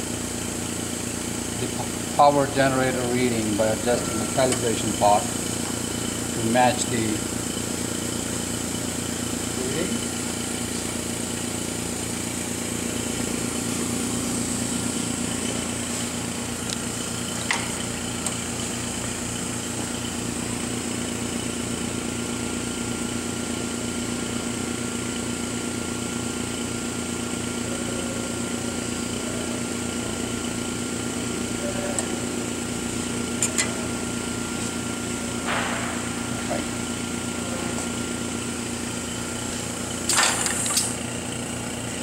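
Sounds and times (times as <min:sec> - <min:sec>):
machine hum with fan noise: 0:00.0 - 0:42.0.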